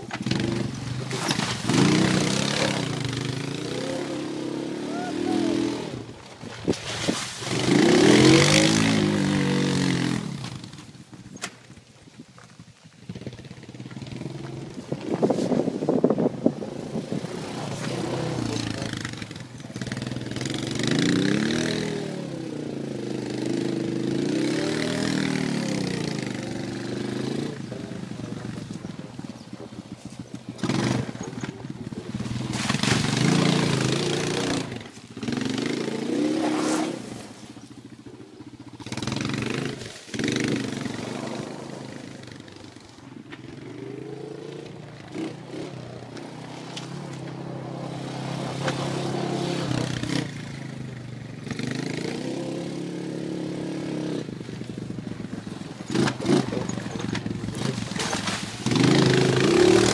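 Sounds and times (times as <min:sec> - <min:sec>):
atv engine revving: 0:00.0 - 0:11.8, 0:12.4 - 0:59.9
loud scraping: 0:36.0 - 0:37.6.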